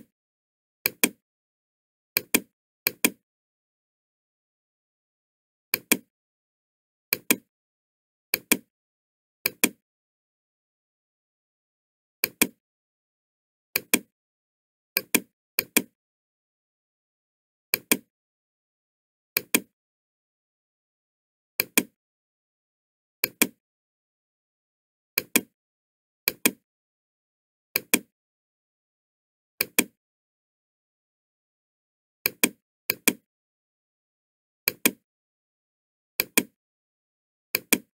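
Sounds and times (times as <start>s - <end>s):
computer mouse button clicking: 5.8s - 6.1s, 7.1s - 7.4s, 29.6s - 30.0s, 34.7s - 35.0s, 36.2s - 36.6s, 37.6s - 37.9s.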